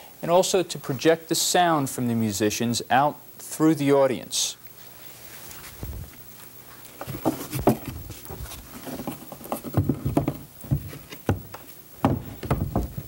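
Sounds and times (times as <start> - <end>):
wooden panels knocking: 9.4 - 13.0.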